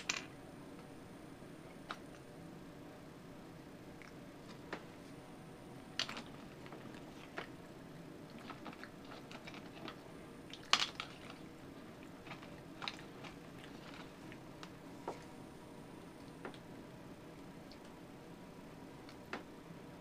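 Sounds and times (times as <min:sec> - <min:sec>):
crunching of nuts: 0:08.3 - 0:14.8.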